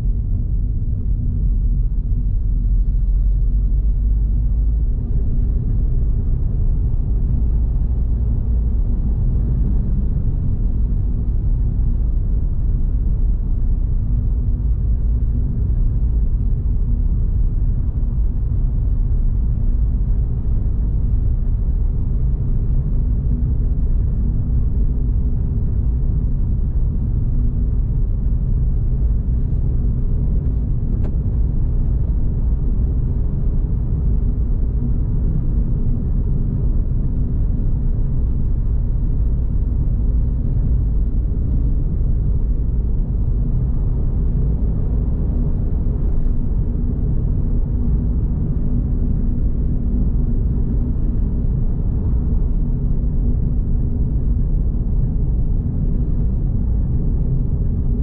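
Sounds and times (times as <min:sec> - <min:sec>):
road noise inside car: 0:00.0 - 0:58.0.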